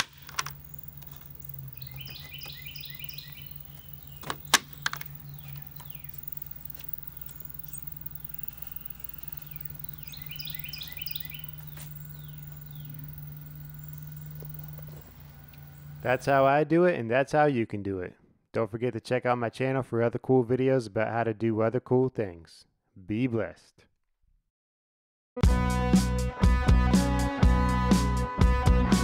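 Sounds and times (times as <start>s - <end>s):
bird chirping: 0.0s - 16.5s
steady low hum: 0.0s - 16.5s.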